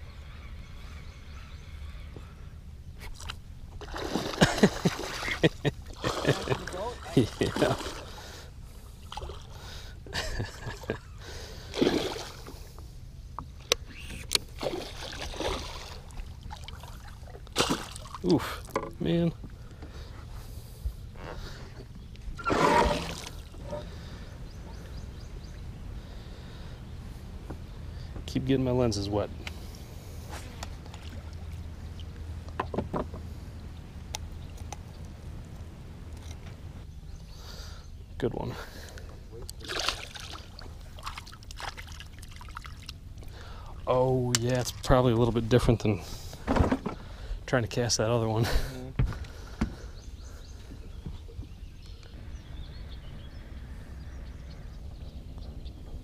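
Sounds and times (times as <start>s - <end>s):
water splashing: 3.2s - 8.3s, 9.0s - 9.6s, 11.6s - 12.6s, 14.5s - 18.7s, 22.4s - 23.9s, 30.4s - 32.3s, 39.4s - 45.6s
fish splashing in water: 39.6s - 43.0s
knocks against boat: 46.5s - 47.0s.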